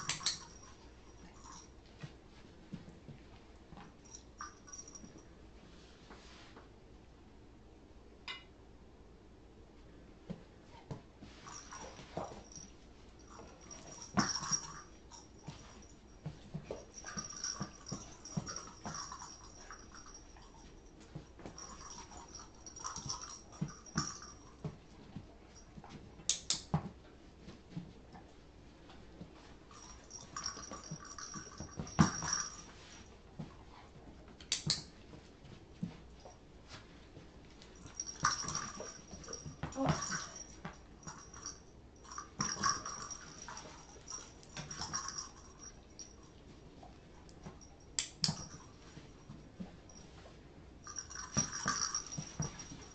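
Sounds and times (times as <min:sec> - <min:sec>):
small knocks and rustles: 0:00.0 - 0:06.7, 0:10.2 - 0:52.9.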